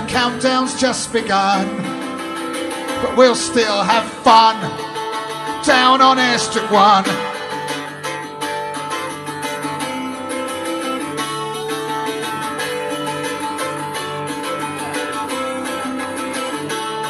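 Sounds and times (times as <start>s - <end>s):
mandolin strumming: 0.0s - 17.0s.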